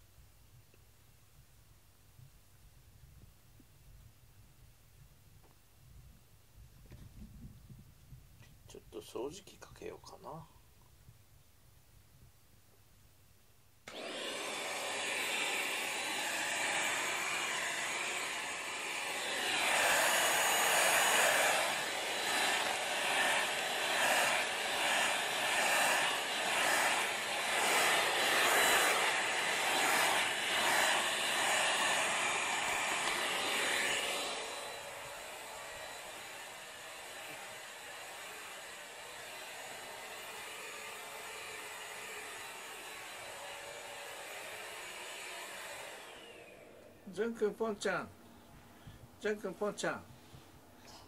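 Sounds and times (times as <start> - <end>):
vacuum cleaner whining: 13.9 - 47.8.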